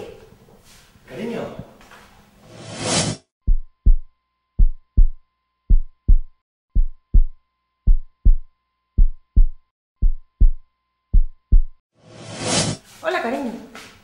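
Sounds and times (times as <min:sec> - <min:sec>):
heartbeat thumps: 0:03.4 - 0:11.8.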